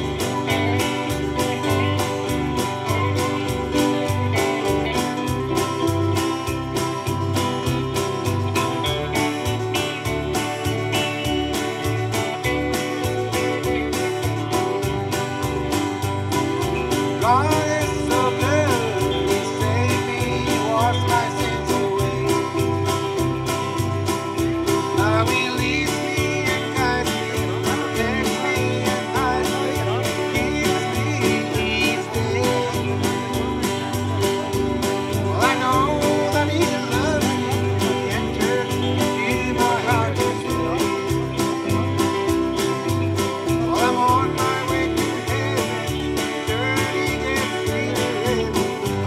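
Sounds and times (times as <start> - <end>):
bass and drum beat: 0.0 - 49.0
country gospel band playing: 0.0 - 49.0
strummed acoustic guitar: 0.0 - 49.0
man singing: 16.8 - 23.8, 24.4 - 49.0.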